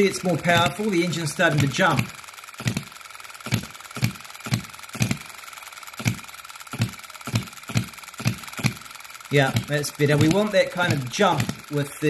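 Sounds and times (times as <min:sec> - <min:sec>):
small engine firing pops: 0:00.0 - 0:12.0.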